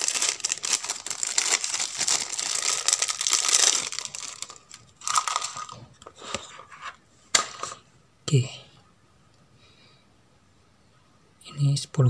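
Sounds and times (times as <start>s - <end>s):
plastic bag crinkling: 0.0s - 6.1s.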